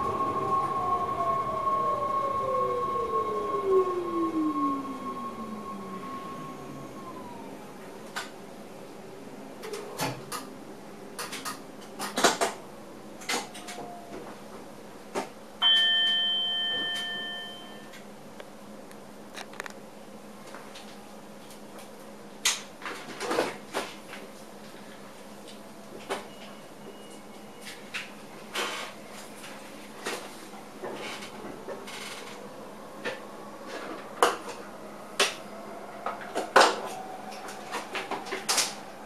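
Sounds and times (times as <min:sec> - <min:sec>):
train running hum: 0:00.0 - 0:19.3, 0:27.6 - 0:39.0
cab signal bell ringing: 0:15.6 - 0:18.0.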